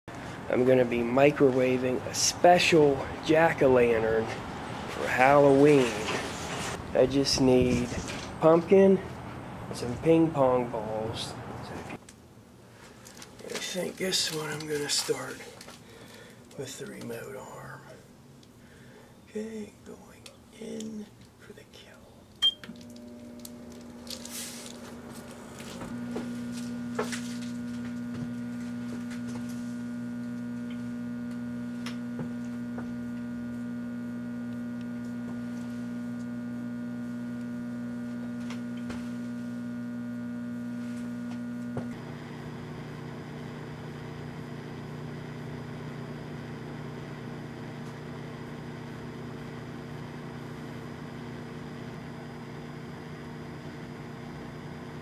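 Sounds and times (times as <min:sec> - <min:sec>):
microwave oven humming: 0:22.4 - 0:55.0.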